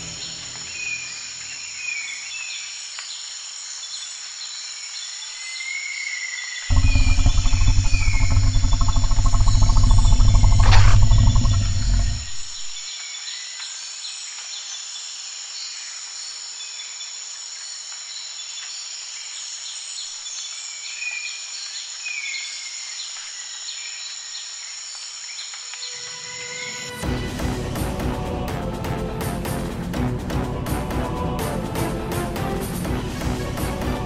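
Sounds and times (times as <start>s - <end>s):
music: 0.0s - 1.1s, 25.7s - 34.0s
insect drone: 0.0s - 27.1s
bird chirps: 6.7s - 12.9s.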